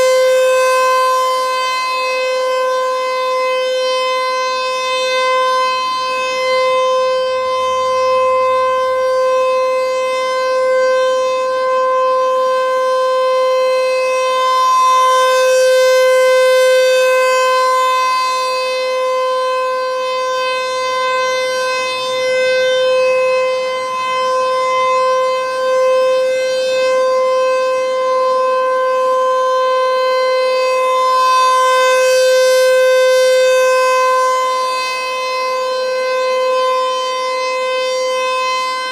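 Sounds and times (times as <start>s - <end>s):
rotating siren steady tone: 0.0s - 38.9s.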